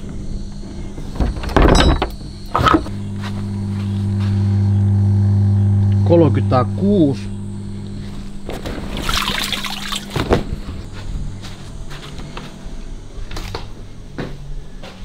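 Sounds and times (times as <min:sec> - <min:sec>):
low hum: 0:00.0 - 0:14.8
water rushing: 0:08.8 - 0:10.2
water splashing and trickling: 0:08.8 - 0:10.2.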